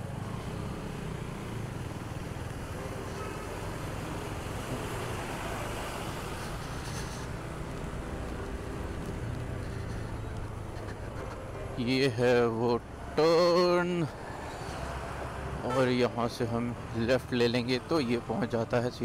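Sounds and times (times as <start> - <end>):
tyres hissing on wet road: 3.1 - 10.7, 14.2 - 15.4.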